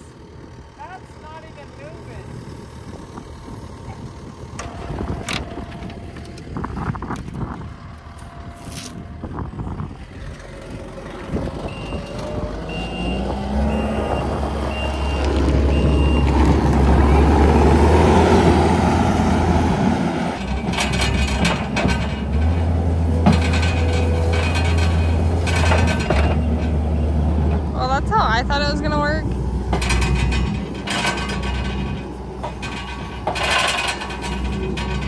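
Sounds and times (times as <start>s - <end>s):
diesel engine running: 0.0s - 35.0s
backup alarm beeping: 11.6s - 17.8s
knocks and rattles: 18.4s - 35.0s.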